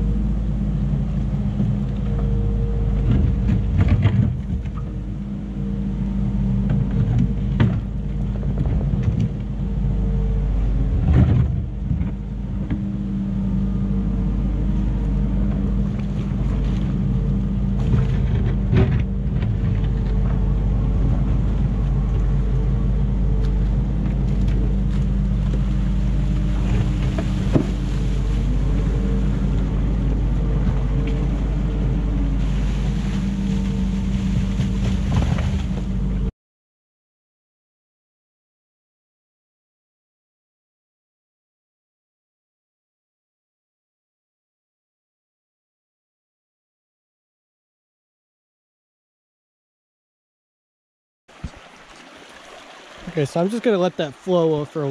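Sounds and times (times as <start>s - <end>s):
loader diesel engine: 0.0s - 36.3s.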